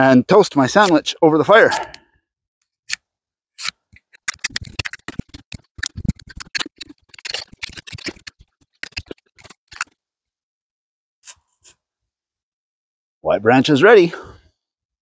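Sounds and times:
knife whittling wood: 3.6 - 9.9.

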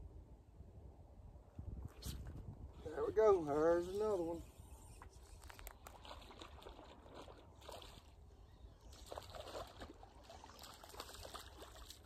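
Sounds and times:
water sloshing and splashing: 5.2 - 12.0.

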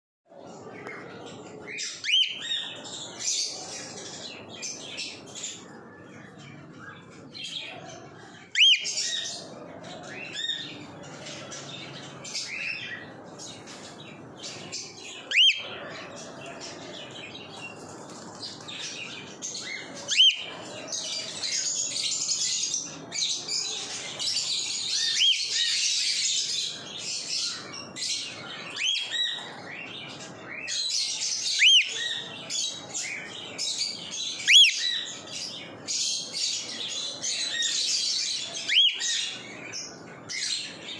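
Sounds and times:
high chirping chatter: 0.3 - 40.9
cockatiel whistled calls: 34.5 - 34.8.

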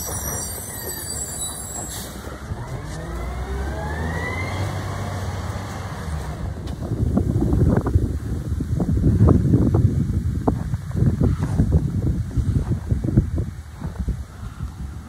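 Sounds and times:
garbage truck engine pulling away: 0.0 - 6.7
wind buffeting microphone: 2.2 - 15.0.

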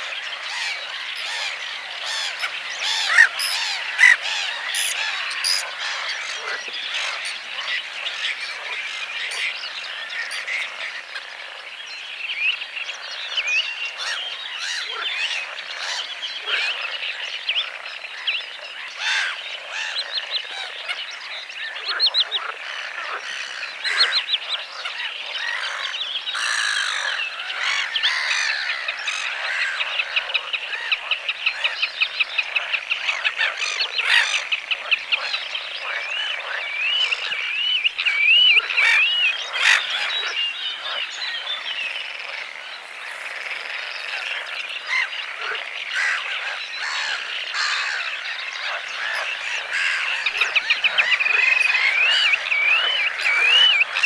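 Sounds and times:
birds chirping: 0.0 - 54.0
frogs trilling: 0.0 - 54.0
wavering whistled call: 2.2 - 5.7, 49.8 - 54.0.

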